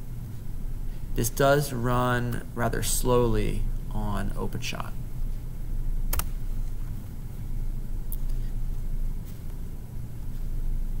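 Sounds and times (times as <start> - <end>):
sharp clicks: 6.1 - 6.3.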